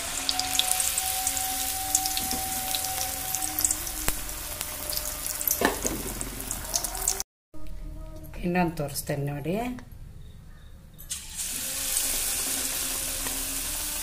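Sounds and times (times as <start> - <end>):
deep-frying sizzle with crackles: 0.0 - 7.2, 11.1 - 14.0.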